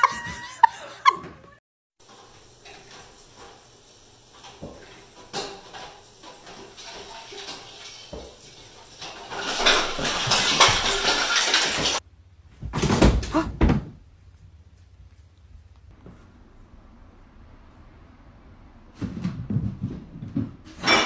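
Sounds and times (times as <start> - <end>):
christmas tree crashing onto tile floor: 9.1 - 12.0.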